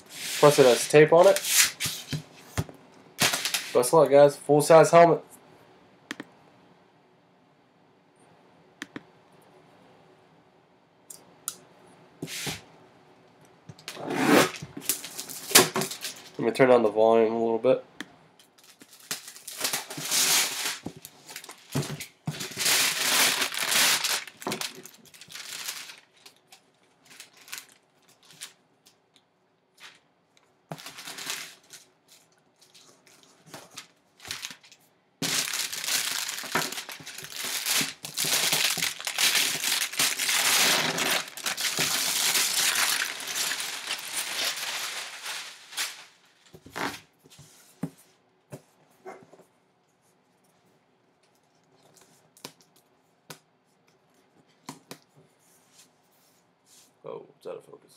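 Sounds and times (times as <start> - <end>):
plastic wrap crinkling and tearing: 13.9 - 16.4, 18.5 - 28.6, 30.7 - 47.1.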